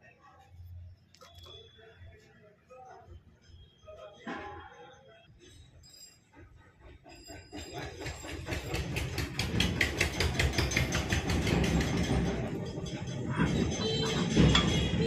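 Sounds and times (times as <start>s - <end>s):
metal clattering: 7.2s - 15.0s.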